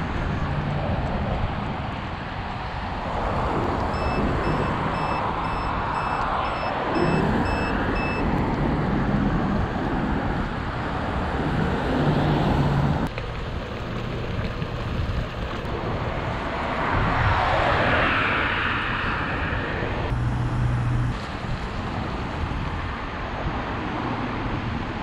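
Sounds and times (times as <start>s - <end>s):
rushing wind and road noise: 0.0s - 25.0s
rapid electronic beeps: 4.0s - 8.2s.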